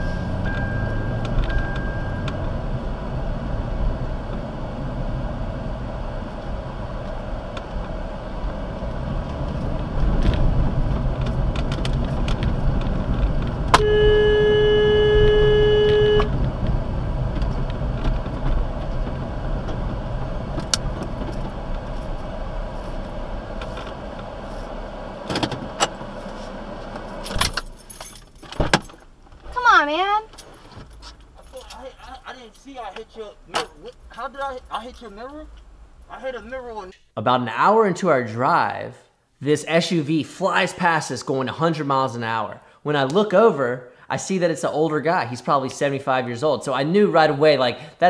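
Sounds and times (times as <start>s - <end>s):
car engine and road rumble: 0.0s - 37.0s
car horn blast: 13.7s - 16.4s.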